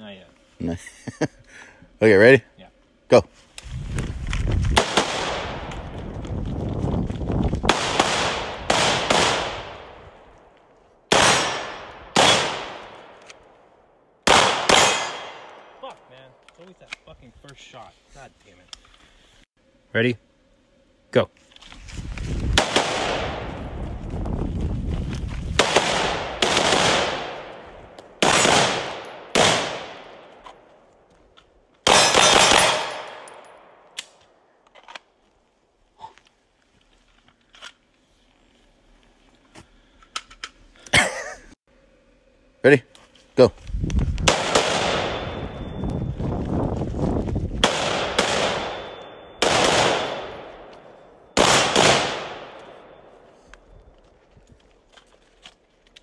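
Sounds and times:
rifle shots echoing: 4.8 - 5.7, 7.7 - 10.1, 11.1 - 13.2, 14.2 - 15.8, 22.6 - 23.5, 25.6 - 27.6, 28.2 - 30.3, 31.8 - 34.0, 44.3 - 45.6, 47.6 - 53.1.

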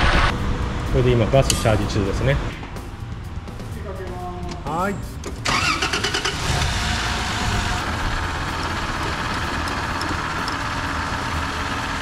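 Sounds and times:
car engine idling: 5.1 - 12.0.

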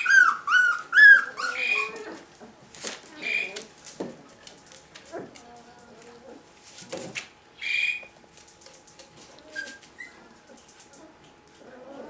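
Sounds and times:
puppies whining: 0.0 - 3.7, 9.3 - 12.0.

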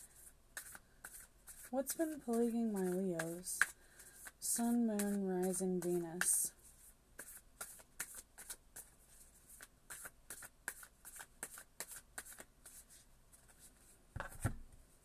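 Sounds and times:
cards being shuffled: 7.2 - 8.9, 9.5 - 14.6.

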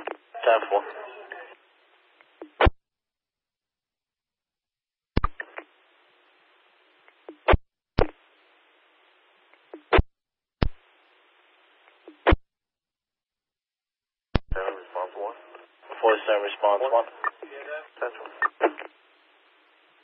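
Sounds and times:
radio static hiss: 0.0 - 2.7, 5.2 - 10.0, 14.4 - 20.0
radio transmission bursts: 15.6 - 19.0.

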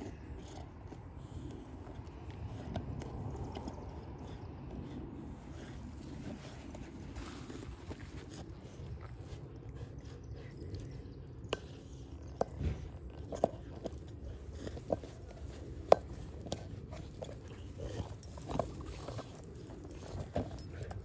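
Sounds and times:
dog teeth clicking on ball: 10.7 - 21.0.

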